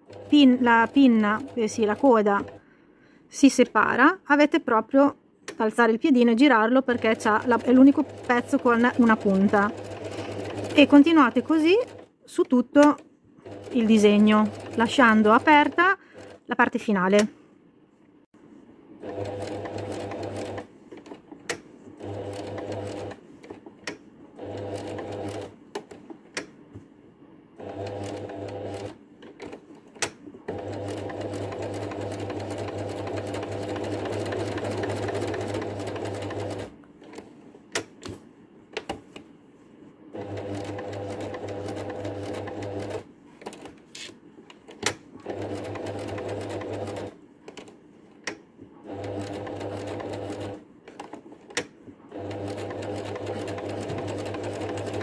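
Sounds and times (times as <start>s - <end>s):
sewing machine stitching: 0.0s - 2.6s, 6.9s - 12.1s, 12.7s - 16.4s, 19.0s - 26.0s, 27.6s - 37.2s, 40.2s - 43.7s, 44.7s - 47.7s, 48.8s - 55.0s.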